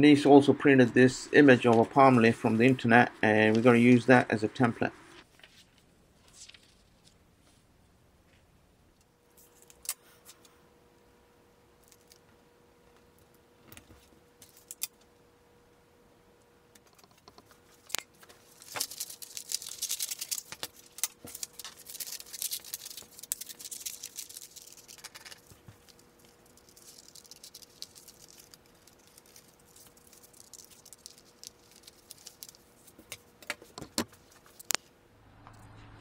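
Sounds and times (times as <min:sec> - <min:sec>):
paper rustling and crinkling: 0:05.2 - 0:07.2, 0:17.6 - 0:34.8
scissors snipping paper: 0:18.6 - 0:33.2.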